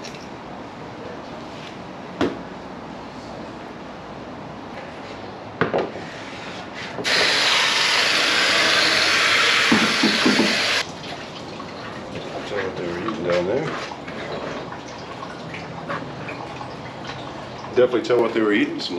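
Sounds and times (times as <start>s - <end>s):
hose nozzle spraying water: 7.0s - 10.8s
knock: 9.7s - 10.6s.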